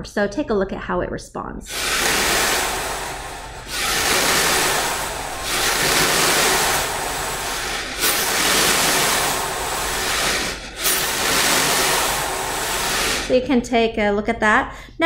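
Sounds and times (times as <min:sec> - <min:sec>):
metal spring coils rattling: 0:01.7 - 0:13.3.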